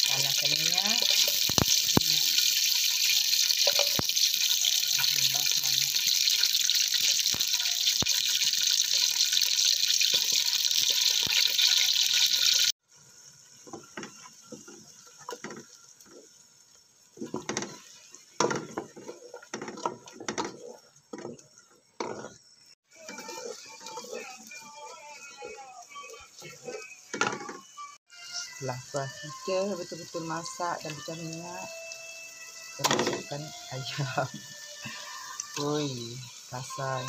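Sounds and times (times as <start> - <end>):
spices sizzling in hot oil: 0.0 - 37.0
wooden spoon scraping pot: 17.2 - 22.4, 23.0 - 24.4.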